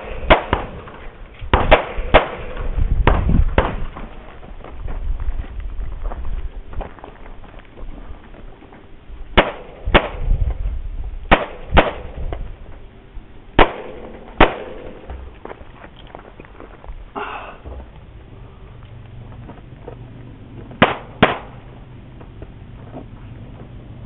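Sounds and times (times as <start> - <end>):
pistol shots: 0.0 - 3.9, 9.4 - 10.3, 11.3 - 12.2, 13.6 - 15.2, 20.8 - 21.7.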